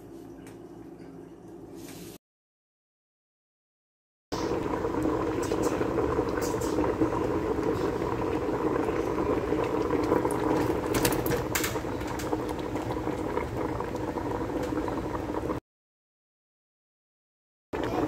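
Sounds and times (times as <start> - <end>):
soup boiling and bubbling: 4.4 - 15.6, 17.8 - 18.0.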